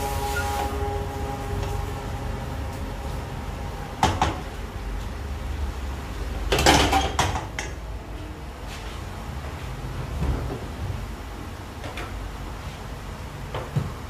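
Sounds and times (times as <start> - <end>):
steady low hum: 0.0 - 6.7.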